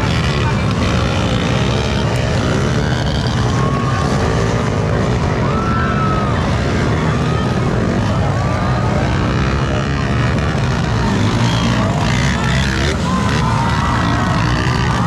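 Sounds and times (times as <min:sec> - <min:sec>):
dirt bike engines revving: 0:00.0 - 0:15.0.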